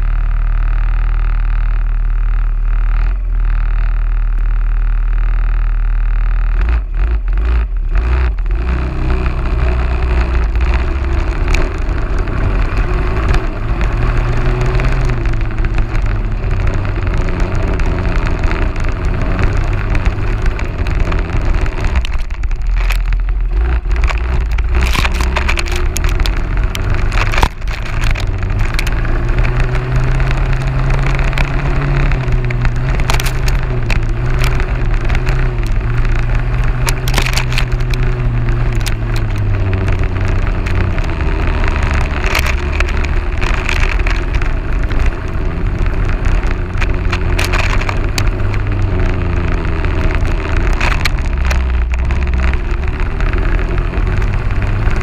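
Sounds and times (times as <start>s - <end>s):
quad bike engine: 0.0s - 55.0s
knocks and rustles: 8.0s - 48.9s.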